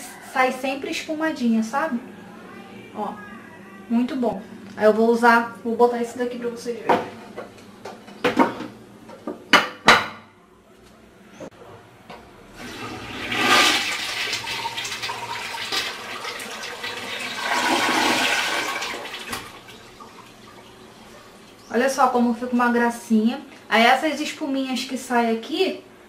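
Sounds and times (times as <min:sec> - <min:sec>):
toilet flushing water: 0:12.5 - 0:21.7.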